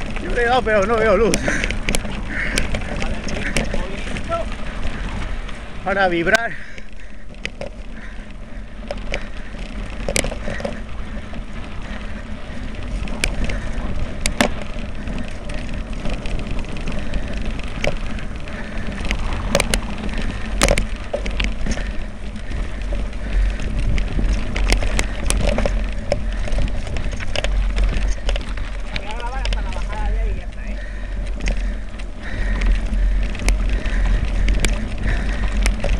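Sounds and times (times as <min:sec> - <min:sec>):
bike knocks and rattles: 0:00.0 - 0:35.9.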